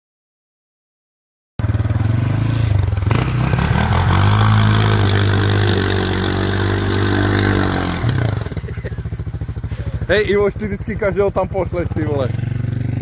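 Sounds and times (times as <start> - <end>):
quad bike engine revving: 1.6 - 13.0
mud and water splashing: 3.5 - 8.7.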